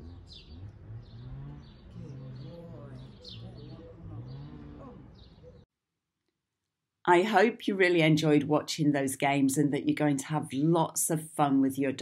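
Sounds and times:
low indistinct voice: 0.0 - 0.5, 1.9 - 5.2
small birds chirping: 0.0 - 5.7.

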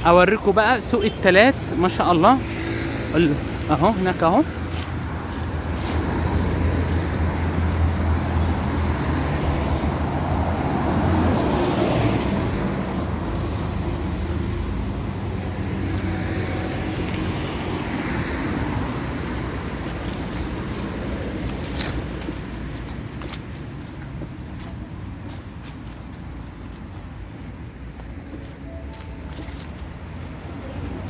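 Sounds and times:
cars driving by: 0.0 - 31.0
car passing: 0.3 - 22.7.

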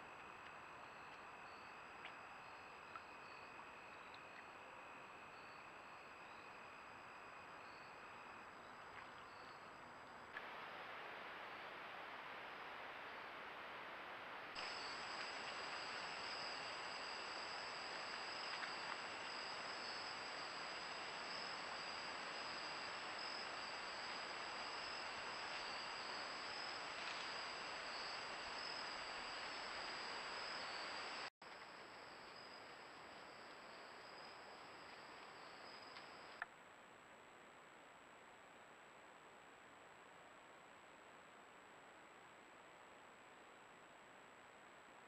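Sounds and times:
crickets trilling: 0.0 - 10.7, 14.6 - 36.4
steady hiss: 0.0 - 36.4.

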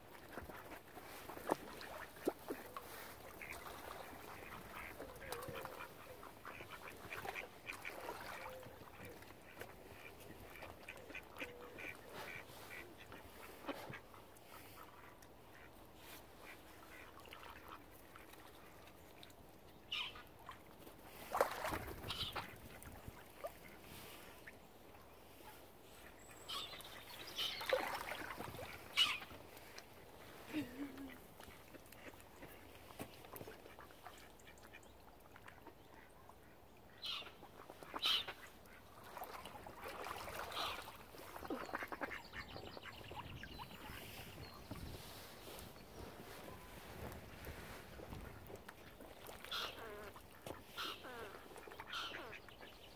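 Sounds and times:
ducks quacking: 0.2 - 15.8, 40.0 - 43.2, 49.2 - 52.7
mallard ducks calling: 9.5 - 15.0, 27.4 - 29.4, 37.0 - 38.8, 40.3 - 44.2, 49.2 - 52.8.

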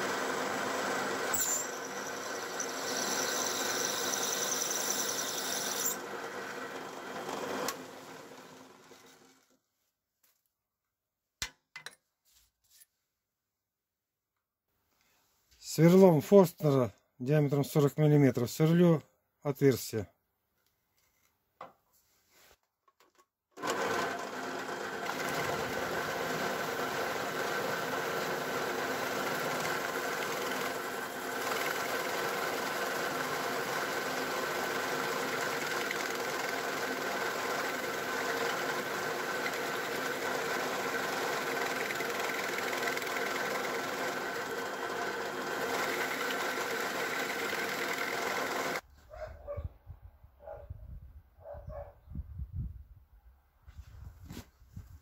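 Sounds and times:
electric drill boring wood: 0.0 - 9.5, 23.6 - 48.8.

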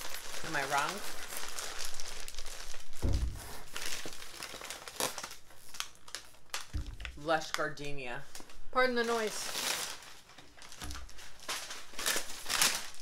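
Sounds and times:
packaging crinkling: 0.0 - 13.0
dull thump: 3.0 - 3.6.

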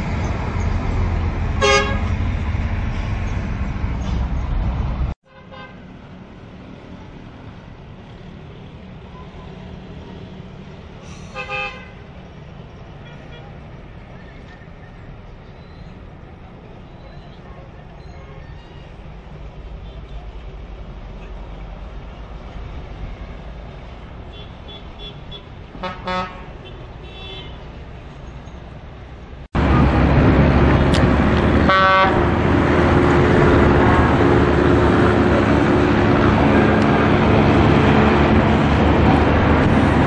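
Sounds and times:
bus engine running: 0.0 - 5.2, 6.0 - 40.0
traffic: 0.0 - 40.0
vehicle horn tooting: 1.6 - 2.1, 24.3 - 27.6, 31.7 - 32.2.

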